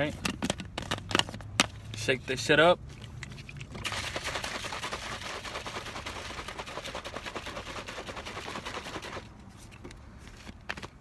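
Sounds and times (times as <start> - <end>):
shaker bottle rattling and sloshing: 3.0 - 9.3.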